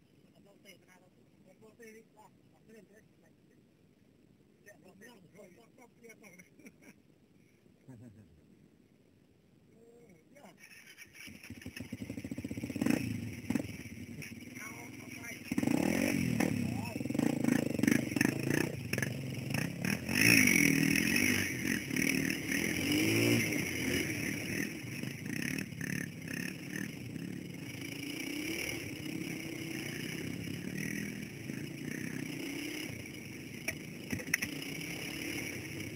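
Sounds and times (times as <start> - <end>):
dirt bike engine revving: 10.7 - 35.9.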